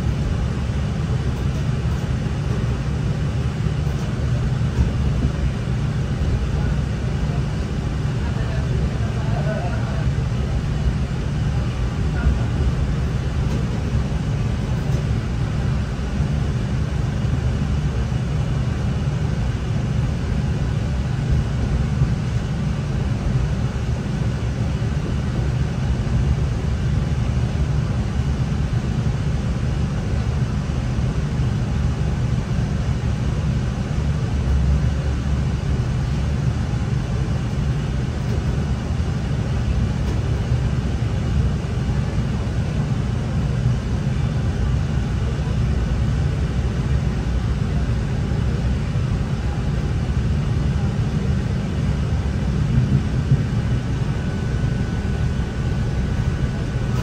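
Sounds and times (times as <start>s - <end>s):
train diesel engine rumble: 0.0s - 57.0s
train wheels on track: 1.3s - 7.4s, 11.1s - 15.2s, 39.9s - 40.6s, 52.2s - 57.0s.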